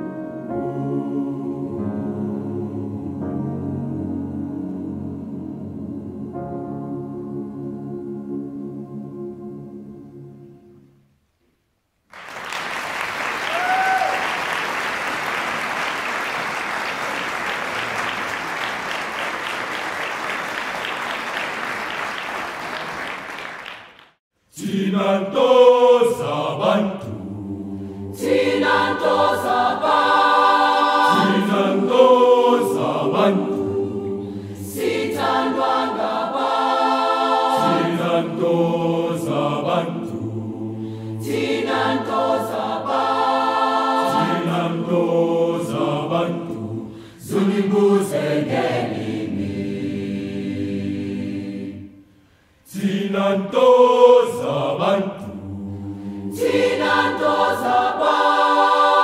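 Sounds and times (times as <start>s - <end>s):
mixed choir singing in harmony: 0.0s - 10.9s, 24.5s - 59.0s.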